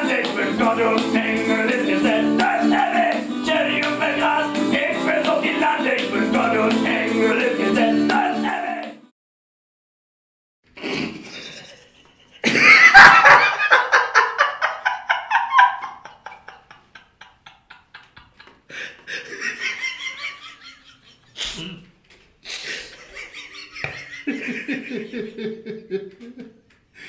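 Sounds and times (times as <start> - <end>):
low chuckling: 10.8 - 26.7
men laughing: 11.2 - 21.8, 22.5 - 26.7.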